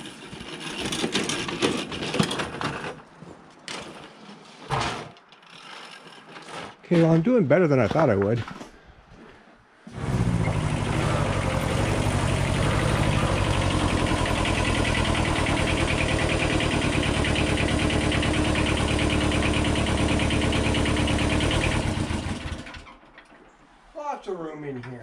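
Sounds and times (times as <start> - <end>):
diesel tractor engine idling: 10.0 - 22.9.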